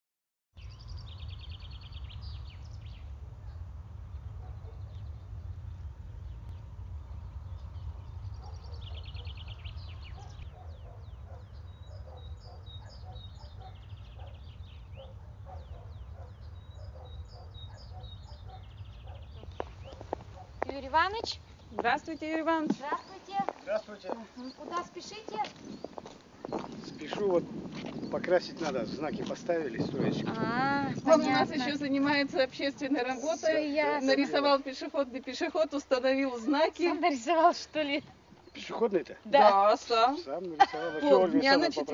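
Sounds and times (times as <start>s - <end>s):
songbirds trilling and chirping: 0.6s - 41.9s
steady low rumble: 0.9s - 10.4s.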